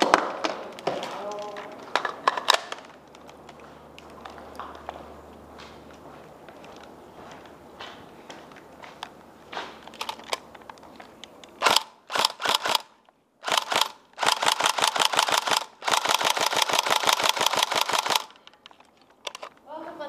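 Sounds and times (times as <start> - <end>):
electric airsoft rifle firing: 11.6 - 18.4.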